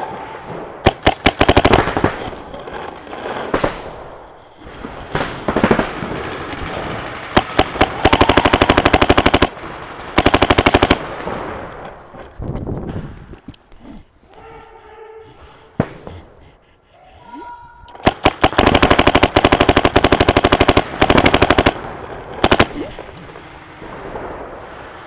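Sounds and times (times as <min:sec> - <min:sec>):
automatic gunfire: 0:00.8 - 0:03.9, 0:05.1 - 0:11.4, 0:18.0 - 0:23.9.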